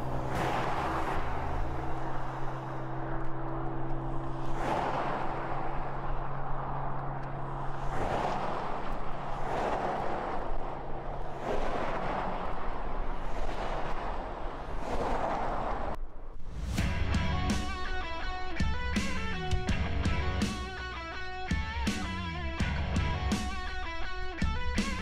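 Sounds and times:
low hum: 0.0s - 8.0s
wind and road noise: 0.0s - 25.0s.

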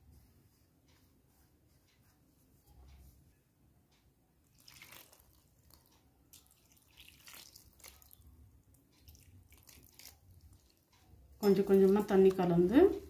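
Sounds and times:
water trickling into a steel bowl: 4.5s - 13.0s.

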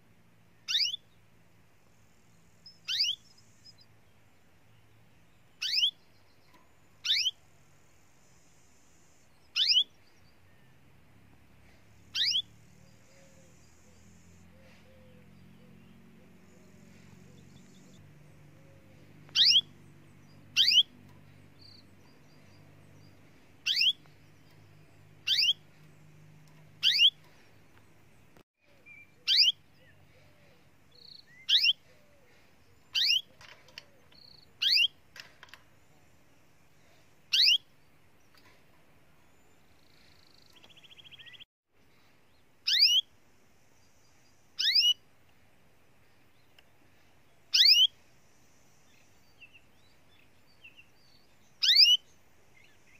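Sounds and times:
canary call notes: 0.7s - 1.1s, 2.7s - 3.7s, 5.6s - 6.0s, 7.0s - 7.4s, 8.8s - 9.9s, 12.1s - 21.0s, 23.3s - 24.2s, 25.2s - 25.7s, 26.8s - 27.4s, 29.2s - 34.0s, 34.6s - 35.0s, 37.3s - 37.7s, 42.7s - 43.1s, 44.6s - 45.0s, 47.5s - 48.0s, 51.6s - 52.0s.

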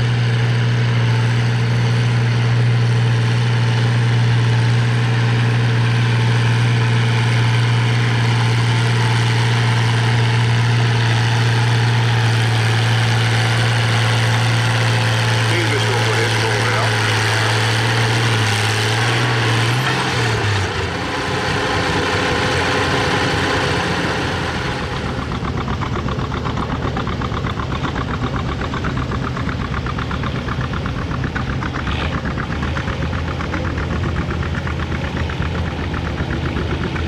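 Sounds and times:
tractor engine running under load: 0.0s - 37.0s.

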